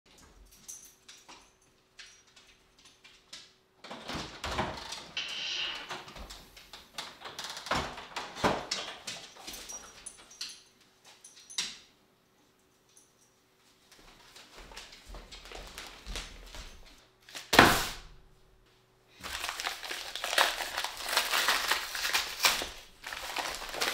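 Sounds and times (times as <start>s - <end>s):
front door opening: 3.8s - 10.4s
paper bag rustling: 19.2s - 23.9s.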